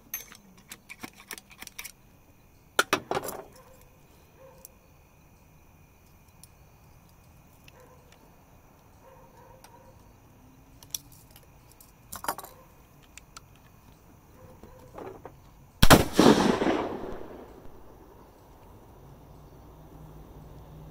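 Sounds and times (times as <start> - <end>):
gunshot blast: 15.8 - 17.9.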